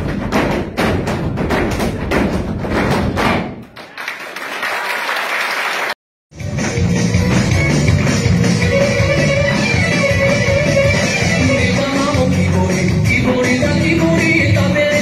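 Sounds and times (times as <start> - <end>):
boots stamping on wooden stage: 0.0 - 3.6
applause: 3.7 - 6.0
dance music: 6.3 - 15.0.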